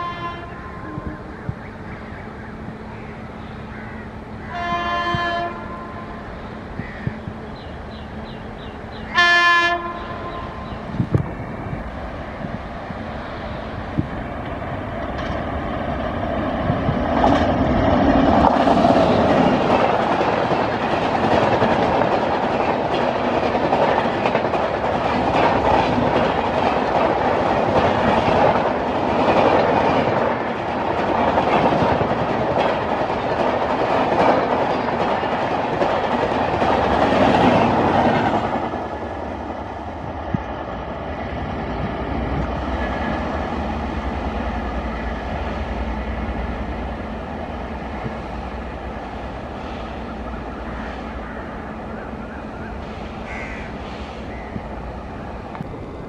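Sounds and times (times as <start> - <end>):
train wheels rumbling on rails: 0.0 - 56.0
clickety-clack over rail joints: 13.9 - 51.0.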